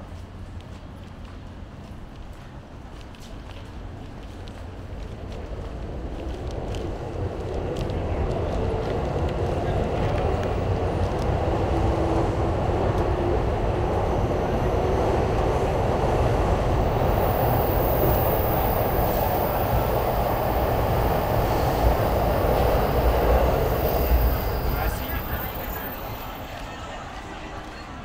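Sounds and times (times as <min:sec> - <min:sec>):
train rumbling past: 0:03.8 - 0:28.0
faint high whine: 0:12.6 - 0:27.4.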